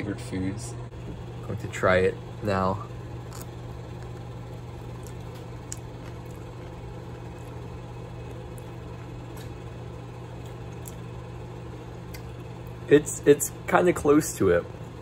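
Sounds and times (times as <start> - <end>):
low mechanical hum: 0.0 - 15.0
mouth chewing: 3.2 - 9.6.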